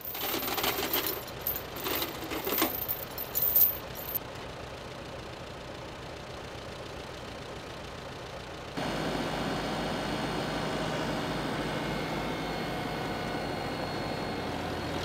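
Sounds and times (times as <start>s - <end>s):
metallic clinking and jangling: 0.0s - 4.2s.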